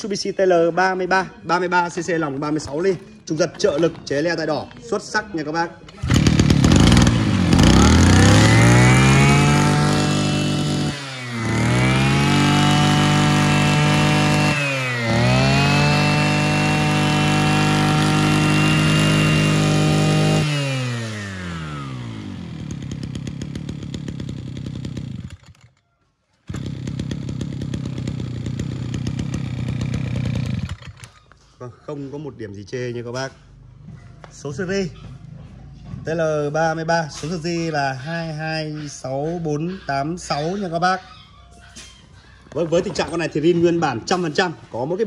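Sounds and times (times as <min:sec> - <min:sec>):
brush cutter engine revving: 0:05.9 - 0:25.8, 0:26.5 - 0:31.4.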